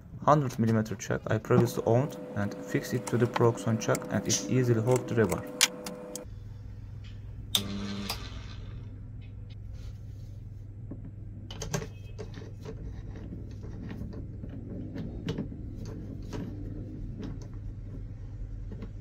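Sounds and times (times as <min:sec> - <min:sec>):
steady low hum: 0:00.0 - 0:11.5.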